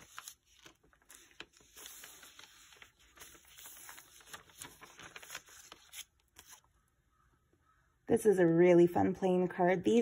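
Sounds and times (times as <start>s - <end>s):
paper pages rustling and clicking: 0.0s - 6.7s.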